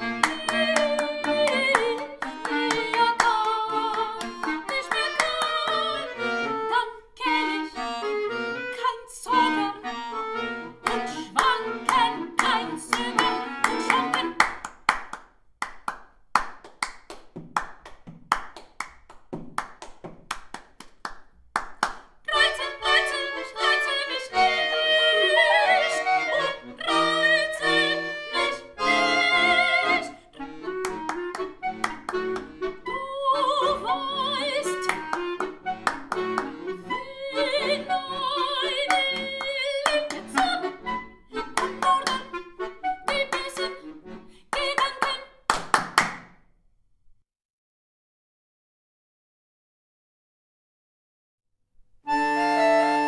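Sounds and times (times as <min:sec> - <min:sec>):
woman singing with vibrato: 0:00.0 - 0:07.9, 0:08.7 - 0:09.9, 0:10.8 - 0:14.4, 0:22.3 - 0:30.6, 0:32.8 - 0:35.2, 0:36.8 - 0:40.8, 0:41.4 - 0:43.8, 0:44.5 - 0:45.4
accordion held tones: 0:00.0 - 0:14.6, 0:22.3 - 0:45.1, 0:52.0 - 0:53.0
hand claps and taps: 0:00.2 - 0:05.8, 0:10.8 - 0:22.2, 0:30.8 - 0:32.6, 0:34.8 - 0:36.5, 0:41.4 - 0:42.4, 0:44.5 - 0:46.4.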